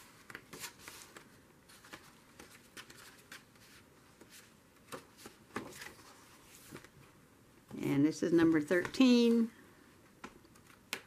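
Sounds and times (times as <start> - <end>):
sketchbook pages turning: 0.1 - 7.0.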